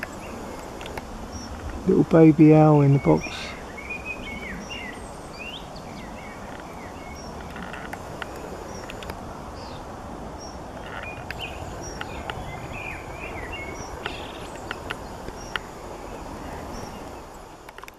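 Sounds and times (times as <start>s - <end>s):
small birds chirping: 0.0s - 17.9s
sharp clicks: 7.4s - 9.2s.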